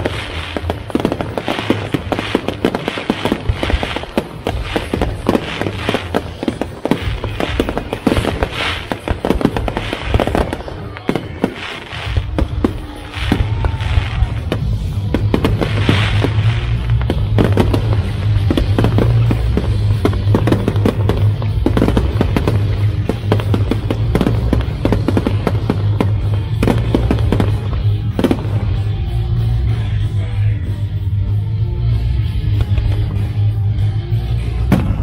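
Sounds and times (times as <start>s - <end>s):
fireworks bangs and crackles: 0.0s - 35.0s
music with steady bass: 0.0s - 35.0s.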